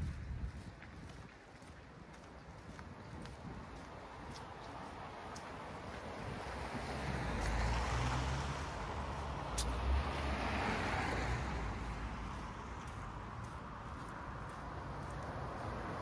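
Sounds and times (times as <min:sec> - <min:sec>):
vehicle passing: 0:03.6 - 0:16.0.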